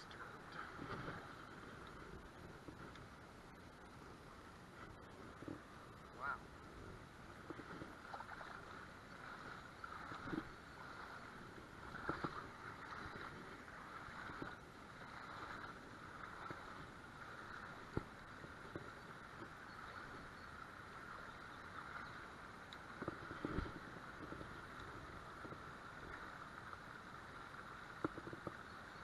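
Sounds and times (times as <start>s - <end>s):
river water running over rocks: 0.0s - 29.0s
faint knocks and clicks: 28.0s - 28.6s.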